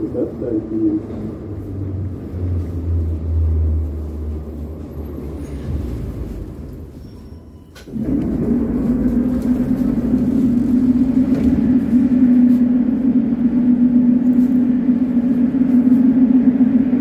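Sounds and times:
train electrical hum: 0:00.0 - 0:17.0
train low rumble: 0:00.0 - 0:17.0.

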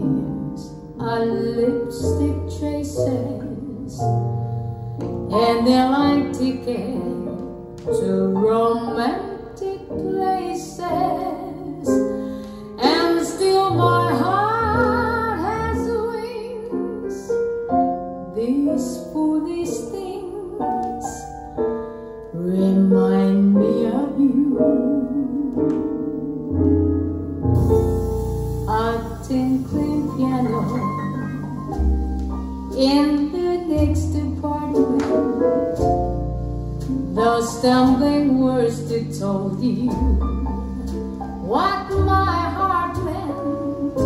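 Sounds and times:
piano accompaniment: 0:00.0 - 0:44.0
woman singing with vibrato: 0:28.7 - 0:31.6.

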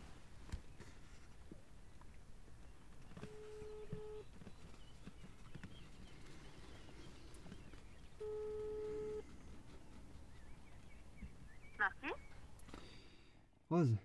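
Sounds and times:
telephone ringback tone: 0:03.2 - 0:04.3, 0:08.2 - 0:09.3.

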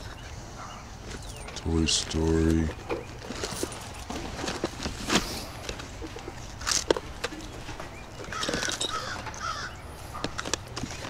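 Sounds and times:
handling rustle: 0:01.0 - 0:11.0
crow cawing: 0:08.3 - 0:09.8.

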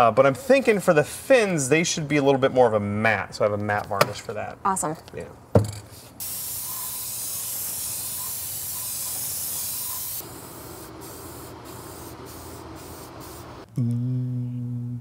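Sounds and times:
steady spray hiss: 0:05.9 - 0:13.7.

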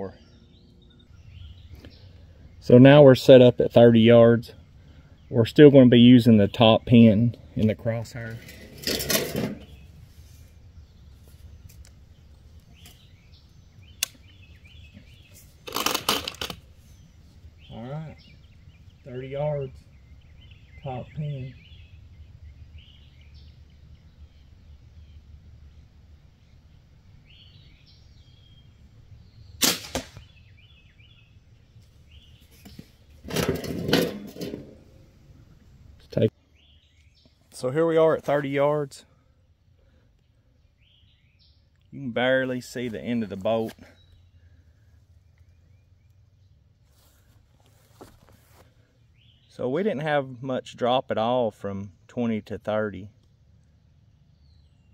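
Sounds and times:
sharp click: 0:14.0 - 0:14.2
crossbow string snapping: 0:14.0 - 0:14.3
crossbow shot: 0:29.6 - 0:30.4
rustling: 0:46.8 - 0:48.9.

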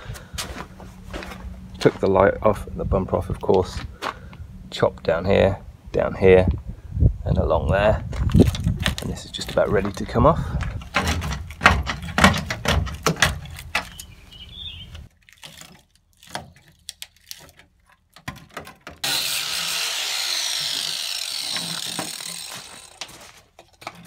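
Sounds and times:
sheet metal clattering and crackling: 0:10.7 - 0:14.0
angle grinder cutting metal: 0:19.0 - 0:23.3.

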